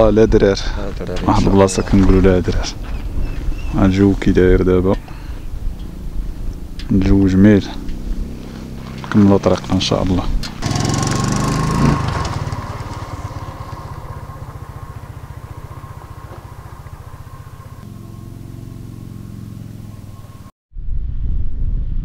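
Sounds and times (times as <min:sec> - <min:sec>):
small motorcycle engine running: 0:05.1 - 0:20.5.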